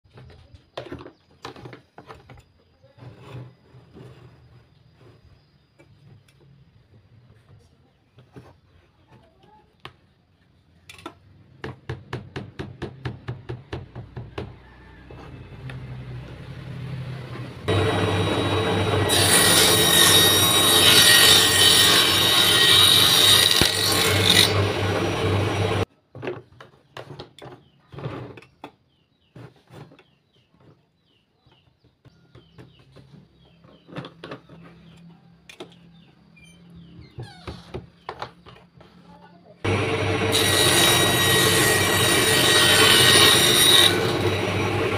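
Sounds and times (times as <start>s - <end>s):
wood and tools knocking: 10.9s - 15.9s
circular saw cutting wood: 17.6s - 25.9s, 39.6s - 44.9s.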